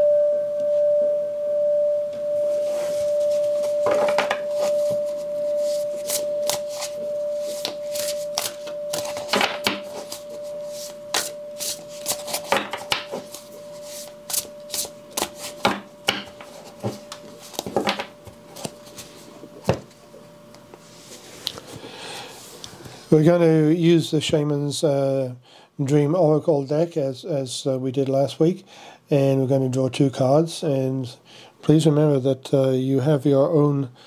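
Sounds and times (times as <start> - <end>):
singing bowl ringing: 0.0 - 17.2
cards being shuffled: 2.9 - 19.2.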